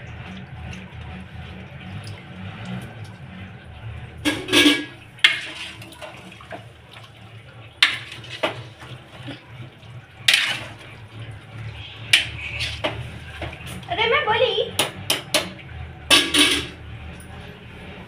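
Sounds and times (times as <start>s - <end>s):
spoon stirring in metal pot: 4.2s - 6.7s, 7.8s - 9.4s, 10.2s - 13.9s.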